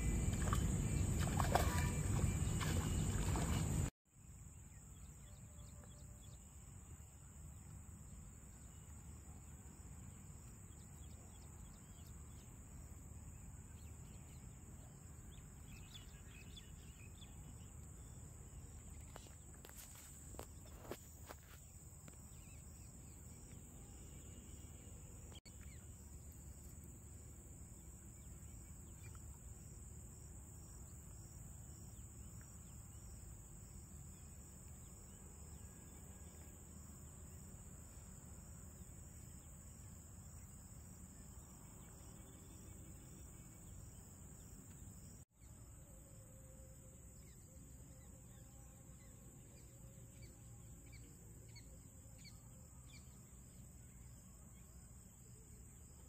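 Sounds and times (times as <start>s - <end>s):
insect drone: 0.0s - 56.0s.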